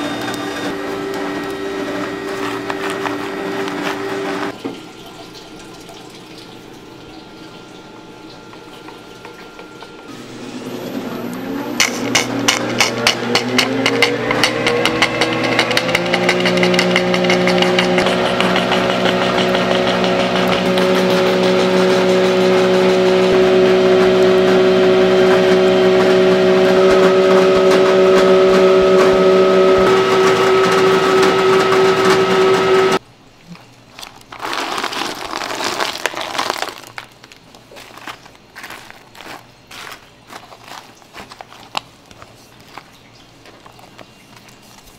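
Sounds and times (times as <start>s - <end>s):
machine motor hum: 0.0s - 4.6s, 6.9s - 33.0s
handling sounds: 0.2s - 4.5s, 33.5s - 44.9s.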